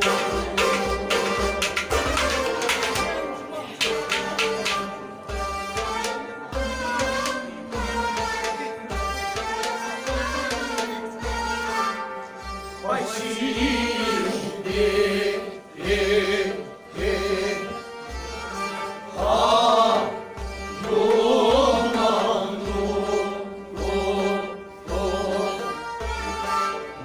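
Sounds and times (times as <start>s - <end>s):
voices singing: 0.0s - 12.0s, 12.8s - 27.0s
sustained instrument notes: 0.0s - 27.0s.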